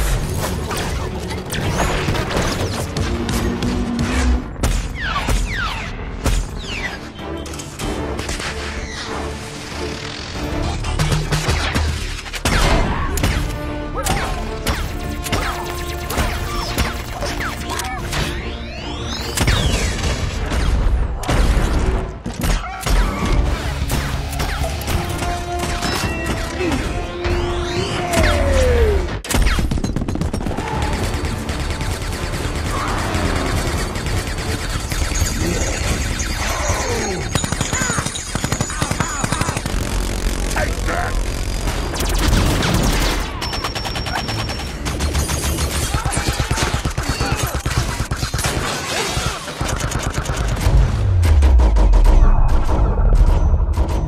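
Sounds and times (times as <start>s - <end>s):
orchestral music: 0.0s - 21.2s, 22.8s - 29.2s
heavy blast and explosions: 22.9s - 54.0s
rapid automatic weapon fire: 29.4s - 36.4s, 37.3s - 50.8s
heavy impacts and explosions: 49.6s - 54.0s.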